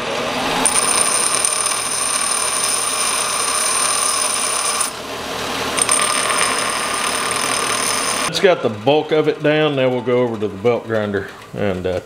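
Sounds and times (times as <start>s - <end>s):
bench grinder grinding steel: 0.0s - 12.0s.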